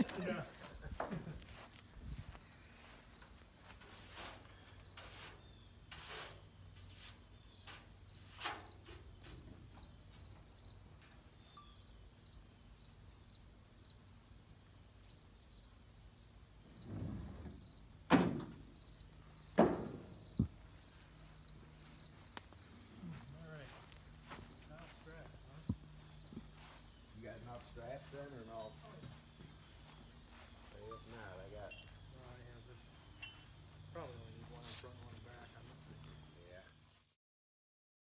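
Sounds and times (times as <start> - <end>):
insects trilling: 0.0 - 37.0
sharp knocks: 19.5 - 20.6.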